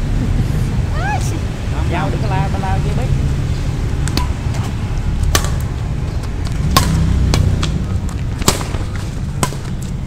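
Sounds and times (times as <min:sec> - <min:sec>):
rackets hitting shuttlecock: 0:04.0 - 0:10.0.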